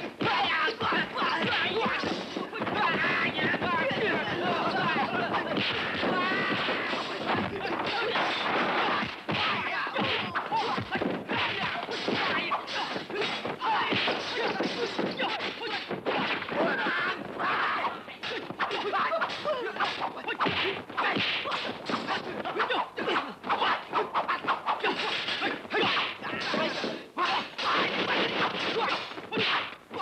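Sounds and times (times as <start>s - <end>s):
punch and kick hits: 0.0s - 22.6s.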